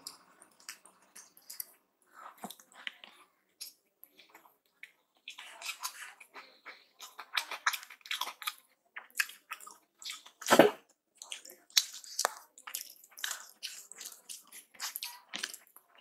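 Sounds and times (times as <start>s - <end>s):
wet chewing and mouth smacks: 0.0s - 16.0s
fingers squishing rice: 11.2s - 16.0s.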